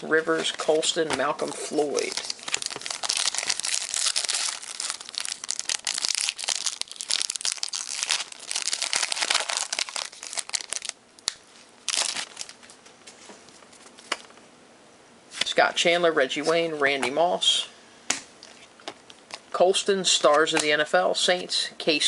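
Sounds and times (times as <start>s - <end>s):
wrapper crinkling and tearing: 1.4s - 12.8s.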